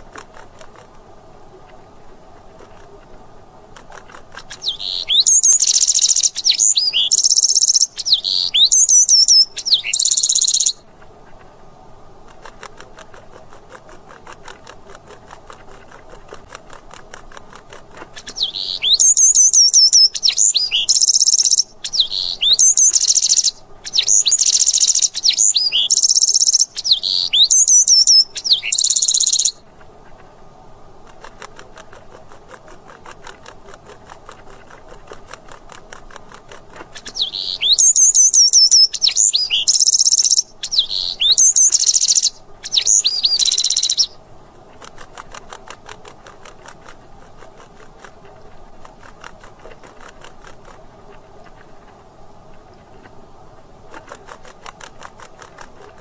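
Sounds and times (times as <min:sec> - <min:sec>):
wren singing: 0:04.4 - 0:10.8, 0:18.2 - 0:29.6, 0:36.9 - 0:44.2.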